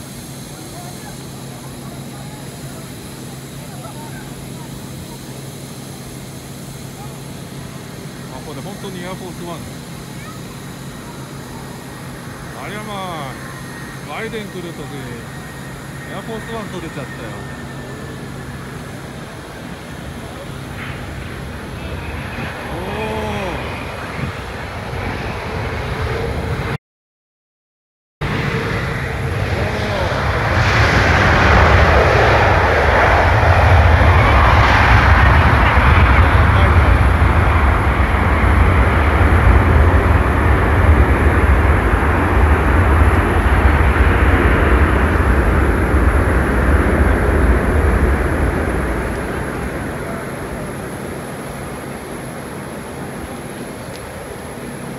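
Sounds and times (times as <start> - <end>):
jet engines roaring: 0.0 - 26.8, 28.2 - 54.9.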